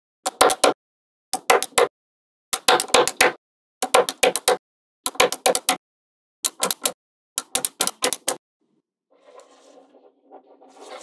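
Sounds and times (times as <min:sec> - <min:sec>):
magnetic balls clicking: 0:02.6 - 0:05.8, 0:06.4 - 0:08.4.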